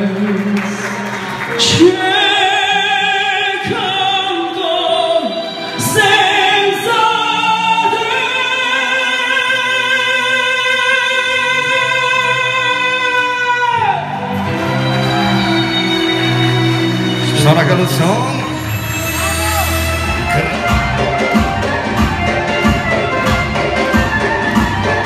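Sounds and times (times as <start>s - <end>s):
person singing: 0.0s - 16.1s
music: 0.0s - 25.0s.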